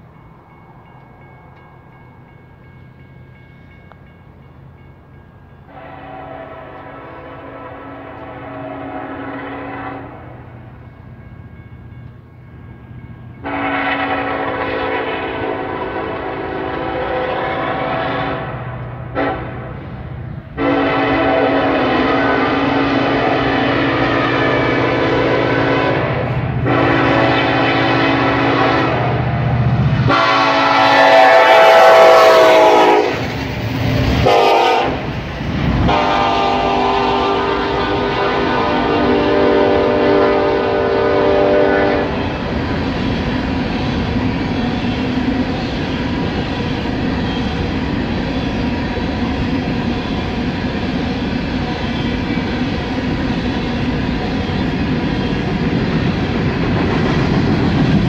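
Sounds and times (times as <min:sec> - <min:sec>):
low train rumble: 0:00.0 - 0:58.0
locomotive air horn blasts: 0:05.7 - 0:10.4, 0:13.4 - 0:19.8, 0:20.6 - 0:29.3, 0:30.1 - 0:33.2, 0:34.2 - 0:35.1, 0:35.8 - 0:42.2.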